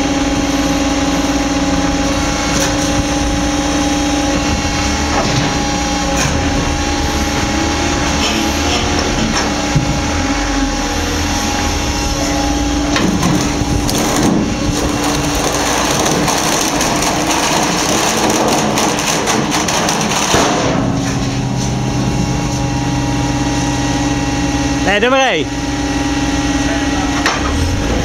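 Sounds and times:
hydraulic pump humming: 0.0 - 28.0
stone crunching and cracking: 12.9 - 21.1.

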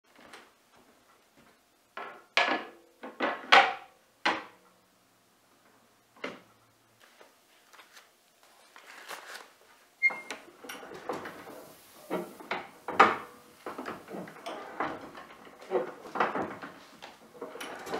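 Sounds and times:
paper bags rustling: 7.5 - 9.8.

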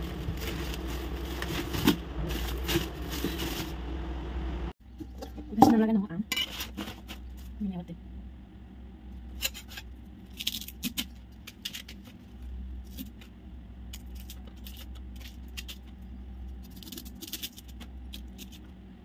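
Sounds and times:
steady low hum: 0.0 - 19.0
bamboo shoot peeling clicks and scrapes: 9.4 - 13.3, 16.6 - 18.7.

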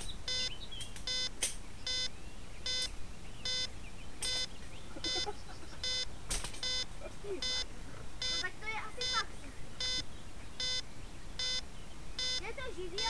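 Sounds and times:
short electronic beeps: 0.2 - 10.8, 11.4 - 11.6, 12.2 - 12.4
clicks: 3.5 - 4.5.

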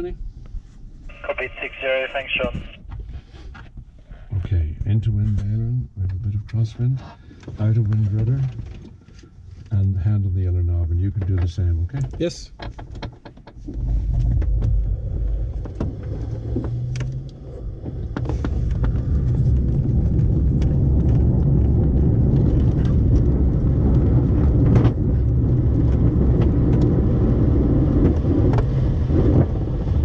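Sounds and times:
wheel rolling on runway: 13.5 - 30.0.

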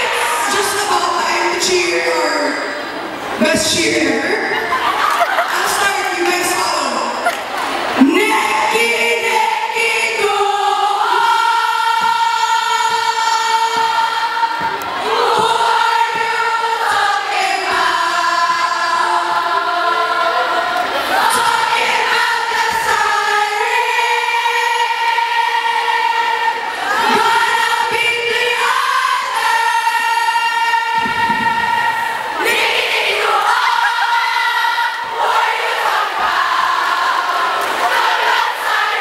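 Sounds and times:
girls singing in unison: 8.0 - 39.0.

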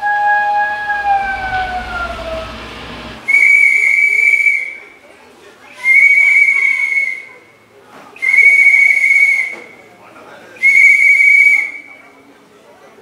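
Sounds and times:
shrill whistle blasts: 0.0 - 4.9, 5.8 - 7.4, 8.2 - 9.7, 10.6 - 12.0.

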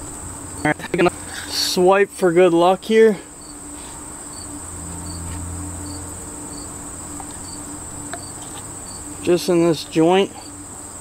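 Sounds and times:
insects trilling: 0.0 - 11.0
low hum: 3.3 - 9.8.

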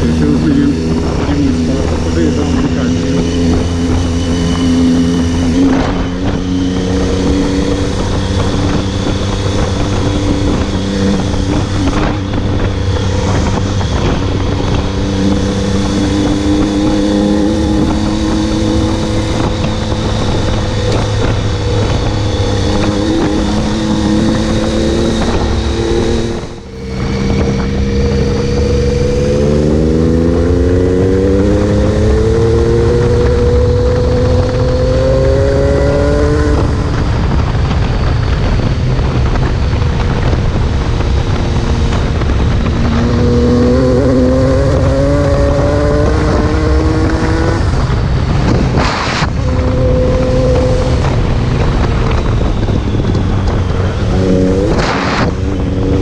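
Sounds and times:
motorcycle engine running: 0.0 - 56.0
road noise: 0.0 - 56.0
wind: 0.0 - 56.0.

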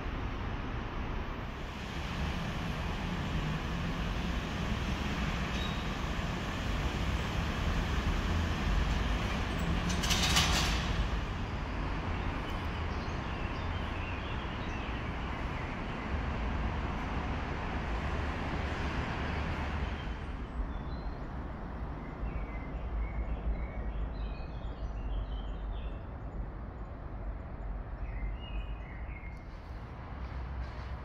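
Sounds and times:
road traffic rumble: 0.0 - 24.1, 25.0 - 31.0.

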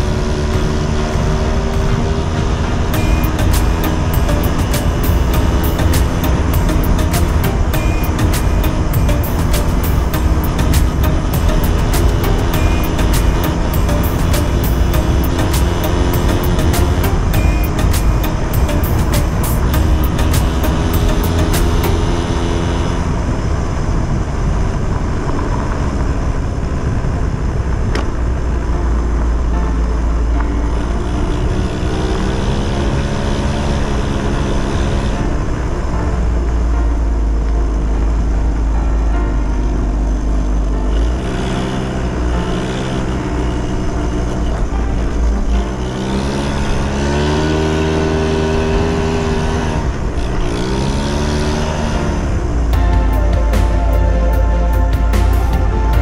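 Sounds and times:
scooter engine running: 0.0 - 27.0, 39.9 - 56.0.

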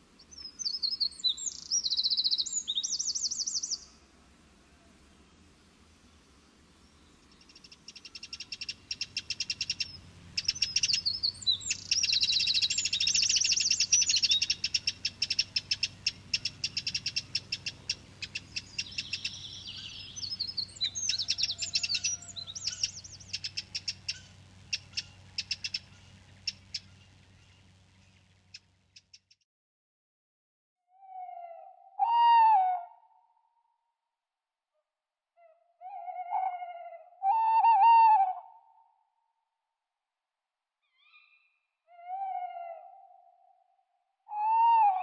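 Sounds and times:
songbirds chirping and whistling: 0.2 - 4.0, 6.8 - 29.2, 35.4 - 38.5.

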